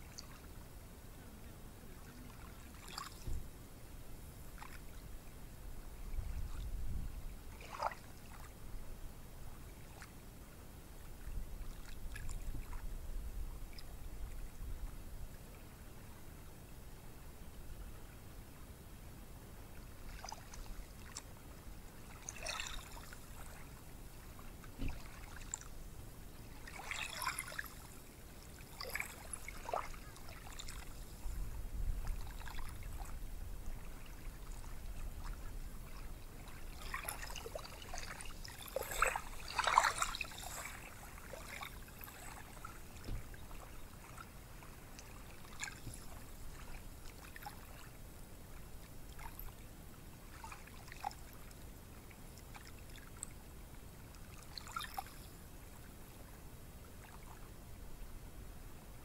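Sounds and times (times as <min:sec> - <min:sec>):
small waves breaking on shore: 0:01.6 - 0:03.6, 0:05.9 - 0:08.6, 0:19.7 - 0:53.3, 0:54.2 - 0:57.5.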